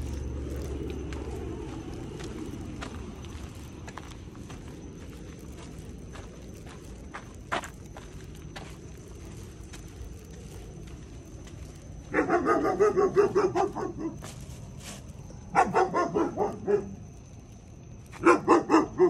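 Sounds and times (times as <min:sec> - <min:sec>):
dogs barking: 0:12.1 - 0:14.4, 0:15.5 - 0:17.0, 0:18.2 - 0:19.0.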